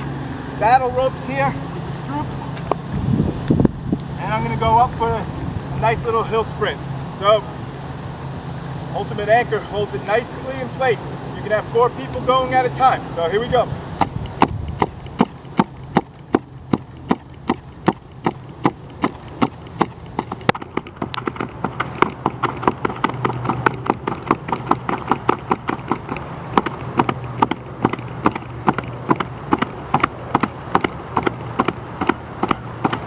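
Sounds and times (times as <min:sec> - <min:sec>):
battle rope clacking: 0:10.1 - 0:33.0.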